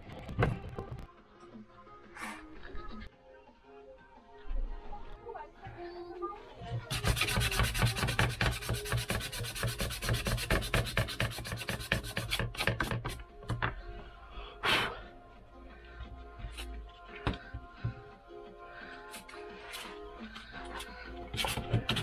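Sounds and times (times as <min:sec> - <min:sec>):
sandpaper scraping wood: 0:06.9 - 0:13.2, 0:21.3 - 0:22.0.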